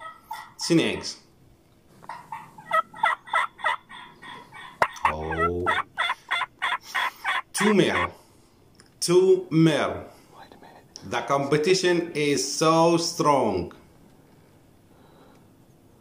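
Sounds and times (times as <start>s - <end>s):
turkeys gobbling: 0.0s - 1.1s, 1.9s - 8.2s.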